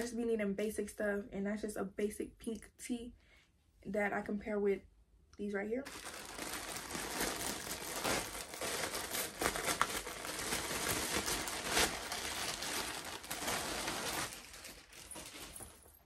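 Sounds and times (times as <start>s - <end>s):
plastic bag crinkling: 5.8s - 16.0s.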